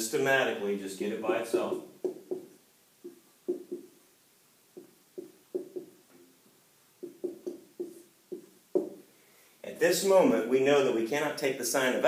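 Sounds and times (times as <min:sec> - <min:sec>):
marker writing on whiteboard: 0:01.3 - 0:04.0, 0:04.8 - 0:06.0, 0:07.0 - 0:09.0.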